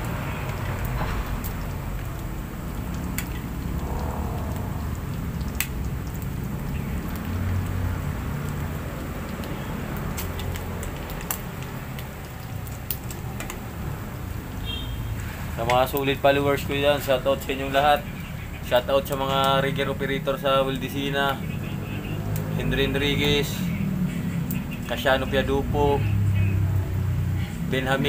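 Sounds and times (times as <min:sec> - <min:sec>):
low rumble: 0:00.7 - 0:07.6.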